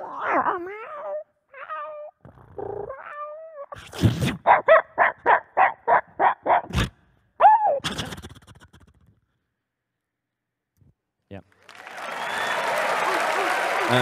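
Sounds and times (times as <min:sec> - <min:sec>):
beatboxer imitating dog whines: 0:00.0 - 0:09.2
beatboxed dog yips: 0:02.9 - 0:09.0.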